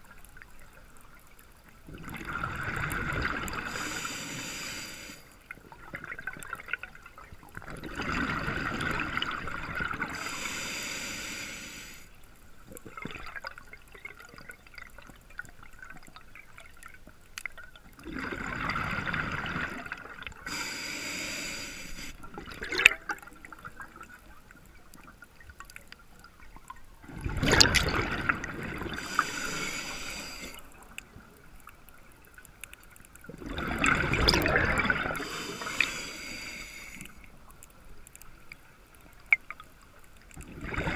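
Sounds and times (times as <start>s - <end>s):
regulator hiss: 3.6s - 5.3s, 10.1s - 12.1s, 20.5s - 22.2s, 29.0s - 30.6s, 35.2s - 37.2s.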